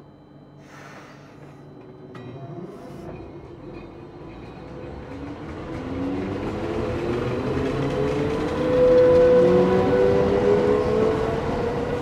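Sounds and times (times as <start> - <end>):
train wheels rumbling: 2.8 - 12.0.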